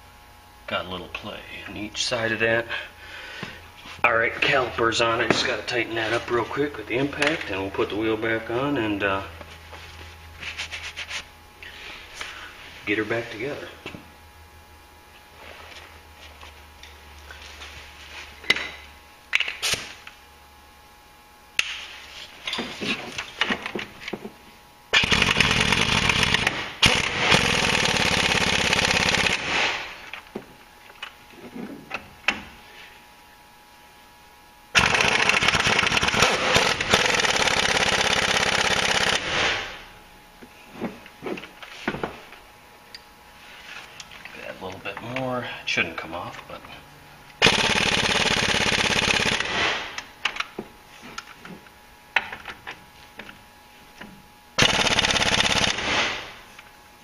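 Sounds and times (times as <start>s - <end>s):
air impact wrench: 24.9s - 30.1s, 34.7s - 39.9s, 47.4s - 50.1s, 54.6s - 56.4s.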